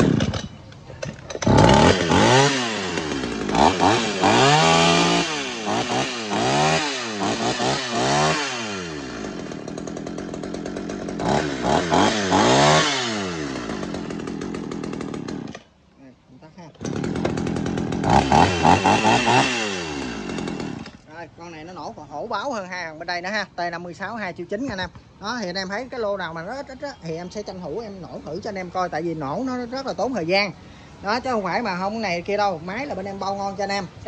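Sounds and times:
chainsaw engine revving: 0.0 - 15.7, 16.7 - 21.1.

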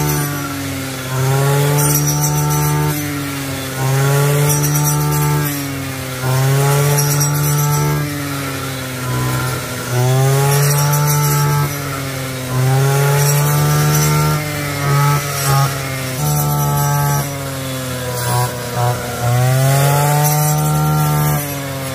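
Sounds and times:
brush cutter engine revving: 0.0 - 21.9.

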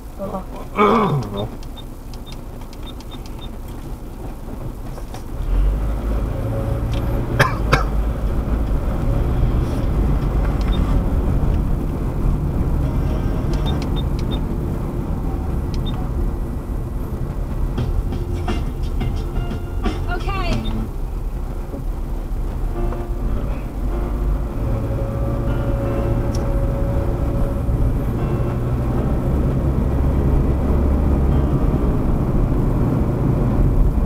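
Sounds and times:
motor vehicle engine rumbling: 0.0 - 34.0.

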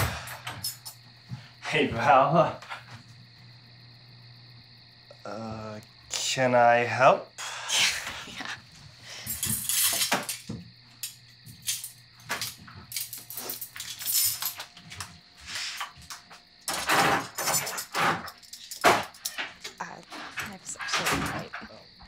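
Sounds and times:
kitchen items knocking and clinking: 16.7 - 21.8.

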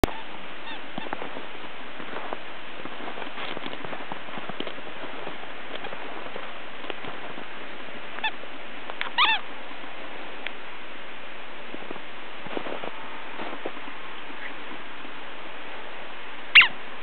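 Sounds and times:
puppy squeaks: 0.0 - 1.1, 9.0 - 9.4.

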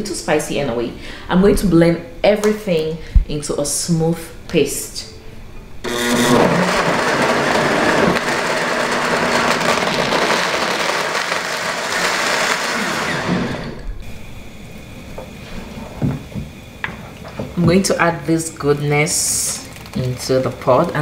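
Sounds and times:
blender grinding paste: 5.9 - 13.9.

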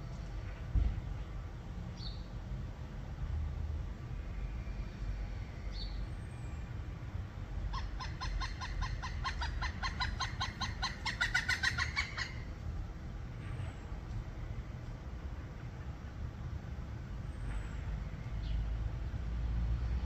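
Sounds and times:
woodpecker calling: 7.7 - 12.5.

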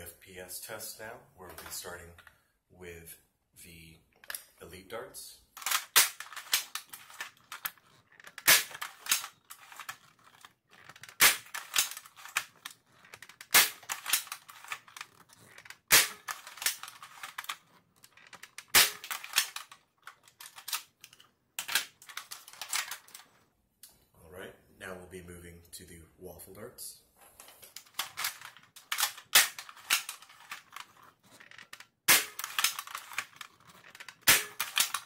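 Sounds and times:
rattle of small clicks: 5.6 - 23.4, 27.5 - 35.0.

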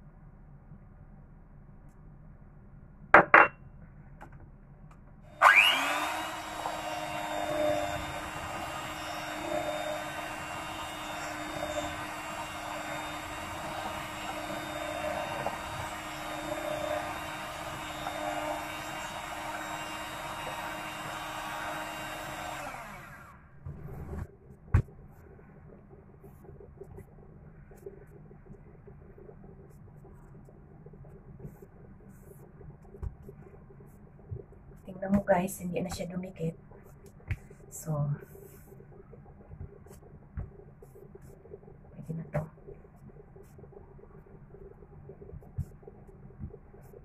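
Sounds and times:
electric hand mixer running: 5.3 - 24.2.

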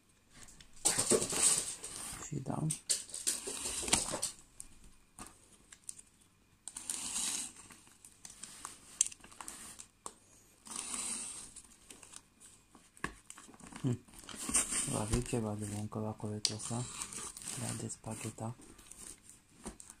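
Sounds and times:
plastic film crinkling and tearing: 13.2 - 20.0.

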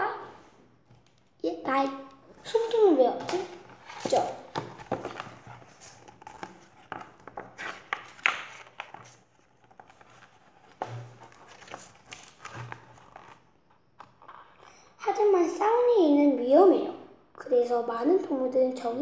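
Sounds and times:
book pages rustling: 0.4 - 14.9.

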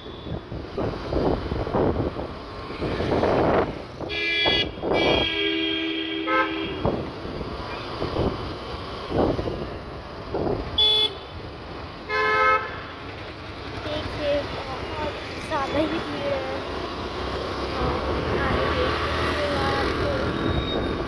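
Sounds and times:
street traffic passing: 0.0 - 21.0
vehicle horn honking: 4.1 - 6.9, 10.8 - 11.2.

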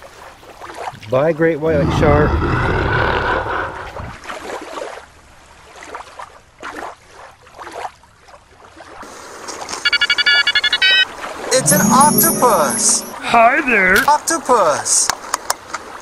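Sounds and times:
water swishing and lapping: 0.0 - 1.8, 3.8 - 9.8.

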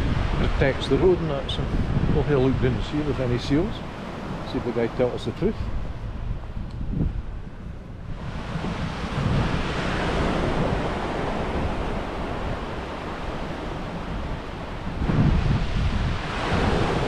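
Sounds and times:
small waves breaking on beach: 0.0 - 6.3, 8.1 - 17.0
wind buffeting microphone: 0.0 - 17.0.

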